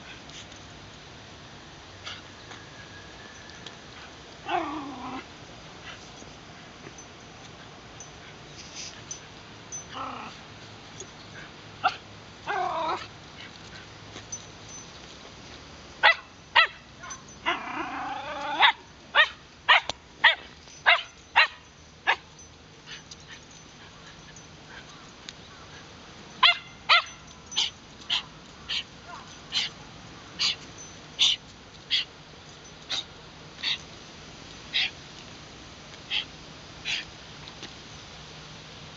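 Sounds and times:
dog whining: 12.5 - 13.1.

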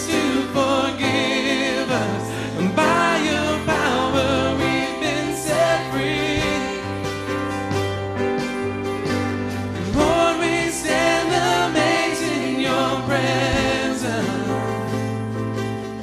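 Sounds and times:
person singing: 0.0 - 7.3, 9.8 - 15.0
guitars: 0.0 - 16.0
worship band playing: 0.0 - 16.0.

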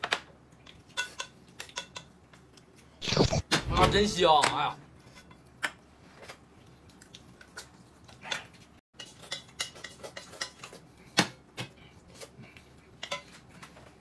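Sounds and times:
utensils tapping dishes: 9.0 - 10.8.

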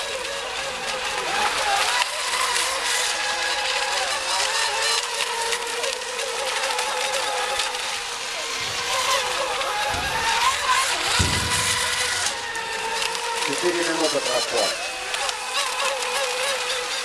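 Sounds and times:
electric boat motors whining: 0.0 - 17.0.

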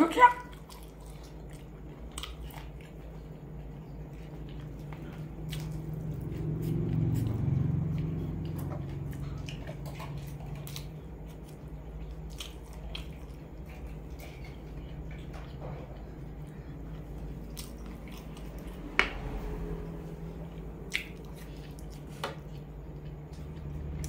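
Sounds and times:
chewing noodles: 0.4 - 24.0
low rumble: 12.8 - 24.0
wet mouth clicks and smacks: 20.9 - 21.9.

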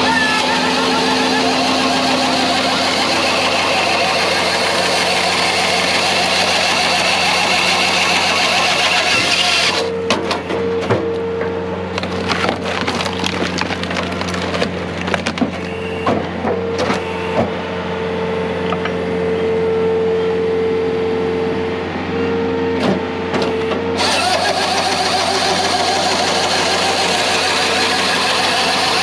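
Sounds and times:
loader engine and hydraulics hum: 0.0 - 29.0
wood cracking and splintering: 11.9 - 15.8.

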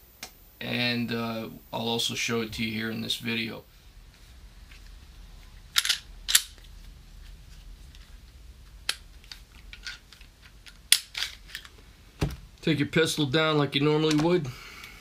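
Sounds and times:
pistol metallic clicks and snaps: 5.8 - 6.6, 8.9 - 11.7.

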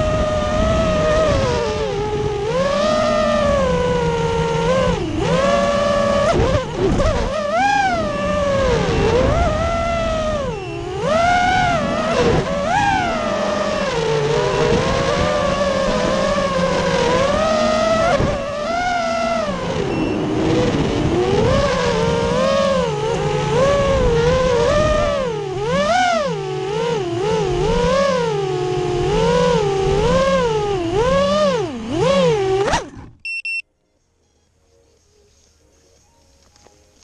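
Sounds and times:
quadcopter motors whining: 0.0 - 33.6
short electronic beeps: 19.9 - 20.4, 33.2 - 34.6.

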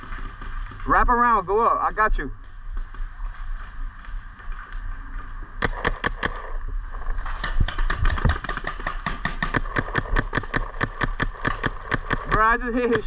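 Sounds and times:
paintball marker firing: 5.6 - 6.6, 7.4 - 12.5.

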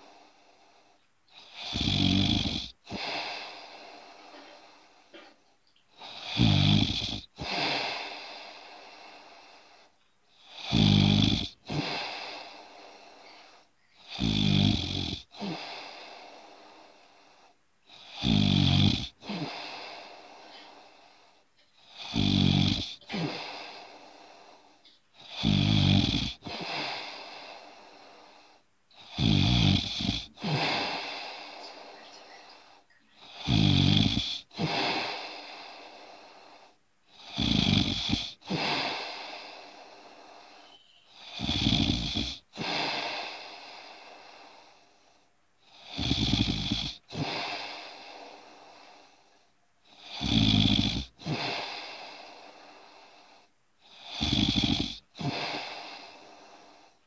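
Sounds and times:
person snoring: 1.3 - 5.4, 6.0 - 57.0.

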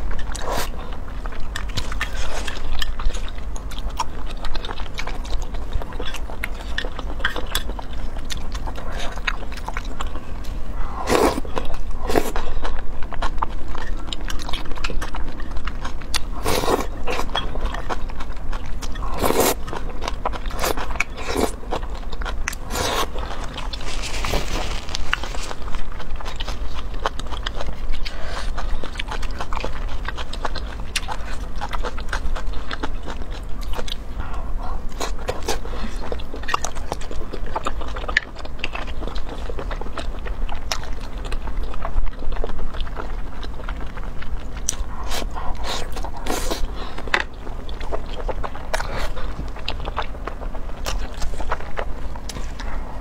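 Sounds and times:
wet chewing and smacking: 0.0 - 53.0
noodle slurping: 19.1 - 19.6.

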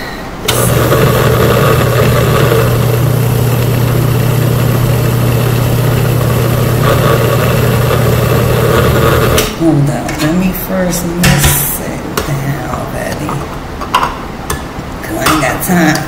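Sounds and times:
blender motor whirring: 0.5 - 9.5.

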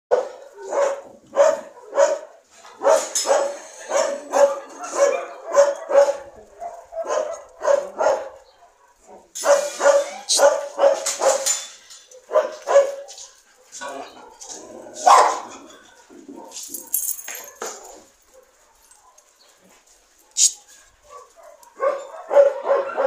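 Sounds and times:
dogs barking: 0.1 - 23.0.

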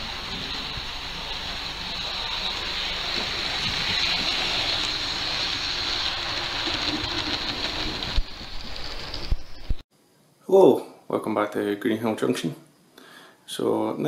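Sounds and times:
model train wheels rolling on rail: 0.0 - 9.7.

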